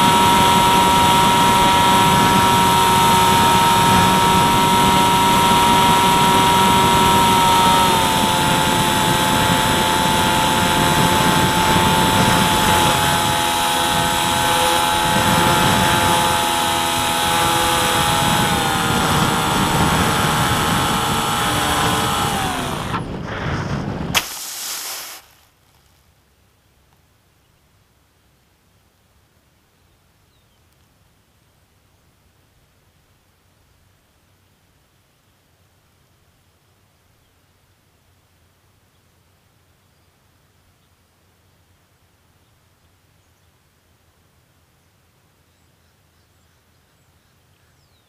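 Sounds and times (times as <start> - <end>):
model plane motor whine: 0.0 - 23.9.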